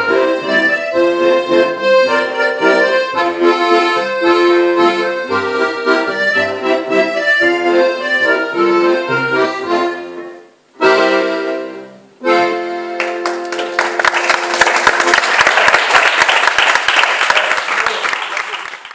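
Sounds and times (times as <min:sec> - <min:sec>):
live folk band playing: 0:00.0 - 0:14.4
audience applause: 0:13.0 - 0:18.9.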